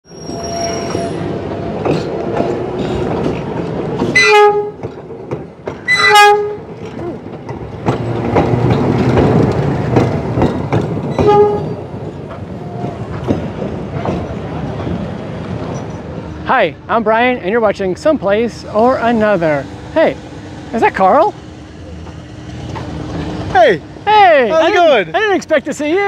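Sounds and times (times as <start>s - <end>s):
steam locomotive whistle blasts: 0.1s - 1.3s, 4.2s - 4.8s, 5.9s - 6.6s
train rumble and clatter: 0.1s - 26.0s.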